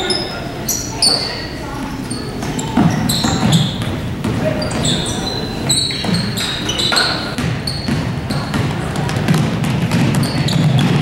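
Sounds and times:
murmur of voices: 0.0s - 11.0s
sneakers squeaking: 0.0s - 11.0s
basketball bouncing: 2.4s - 11.0s.

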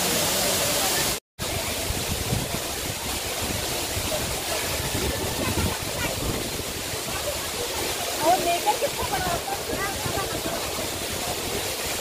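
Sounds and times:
flowing water rushing: 0.0s - 12.0s
wind rumbling on microphone: 1.4s - 7.9s, 8.8s - 12.0s.

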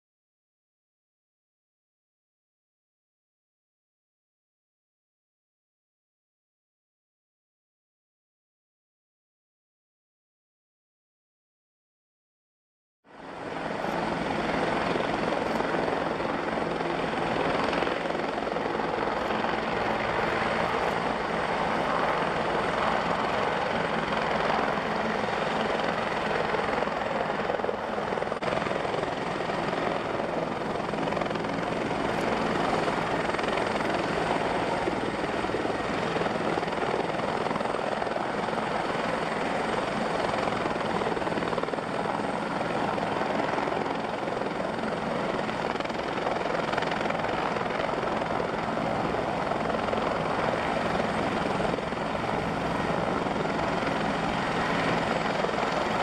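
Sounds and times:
helicopter engine and rotor: 13.1s - 56.0s.

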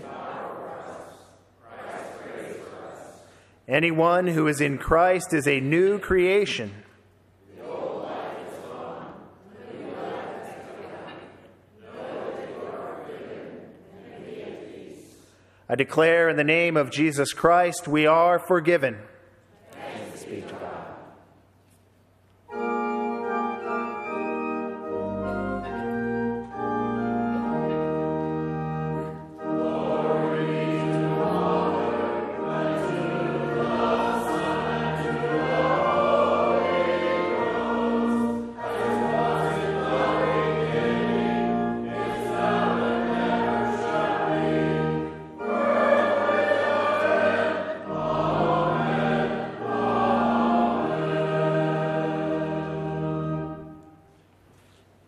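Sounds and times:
choir and congregation singing hymn: 0.0s - 6.8s, 7.4s - 21.3s, 22.5s - 54.1s
organ playing chords: 0.0s - 7.0s, 15.6s - 19.2s, 22.4s - 54.4s.

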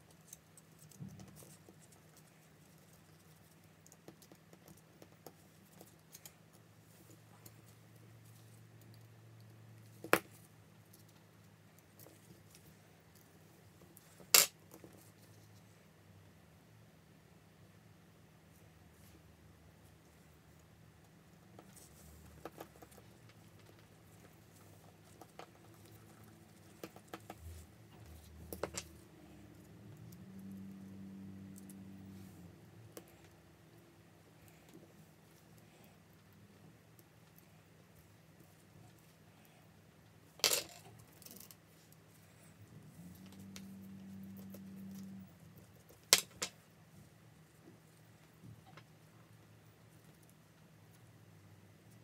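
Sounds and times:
faint low hum: 0.0s - 52.0s.

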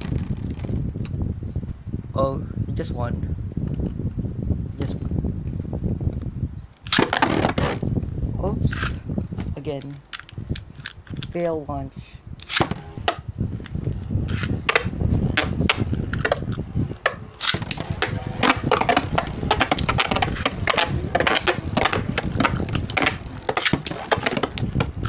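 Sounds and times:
spinning tops whirring: 14.2s - 25.0s
spinning tops clacking: 17.1s - 24.9s.

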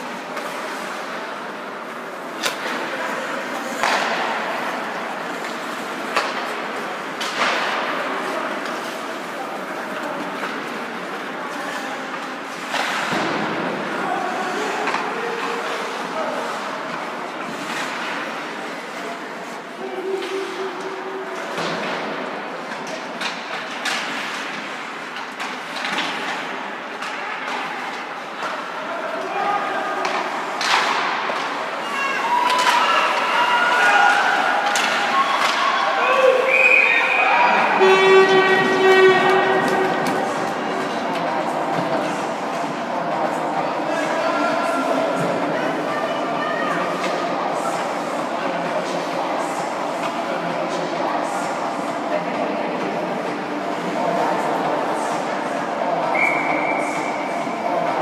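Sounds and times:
hockey sticks and puck clacking: 2.1s - 13.8s, 14.6s - 29.2s, 29.9s - 37.2s, 37.8s - 42.8s
hockey stick hitting puck: 3.7s - 4.4s, 30.0s - 31.6s.

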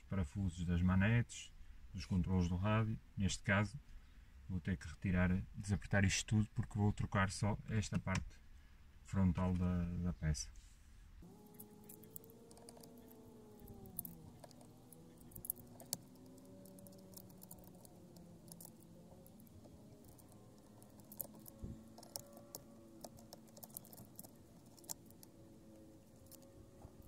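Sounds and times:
small screws and keys clicking: 11.2s - 27.0s.

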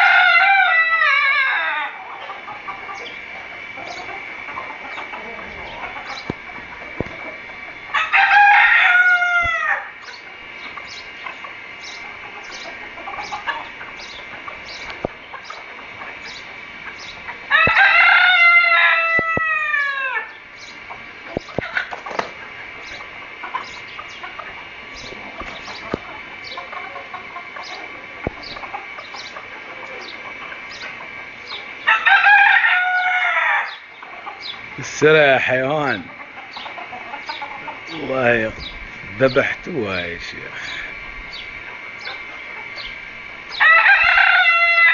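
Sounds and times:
rooster crowing: 0.0s - 3.1s, 3.7s - 10.2s, 17.4s - 20.4s, 31.8s - 34.5s, 43.5s - 44.9s
chicken calls: 0.0s - 44.9s.

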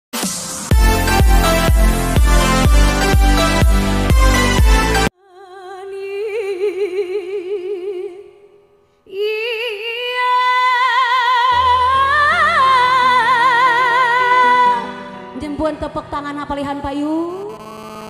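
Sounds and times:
woman singing through loudspeakers: 5.1s - 8.4s, 9.1s - 17.6s.

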